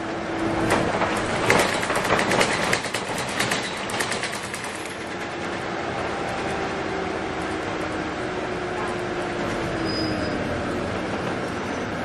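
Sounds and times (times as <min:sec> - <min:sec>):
road and engine noise: 0:00.0 - 0:12.0
bus body rattling: 0:00.4 - 0:06.6.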